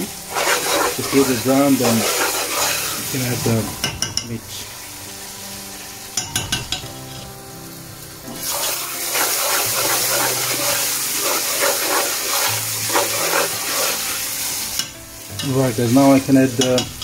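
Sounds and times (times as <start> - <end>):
metal spoon scraping pot: 0.0 - 4.2, 8.5 - 14.2
onions sizzling in hot oil: 0.0 - 17.0.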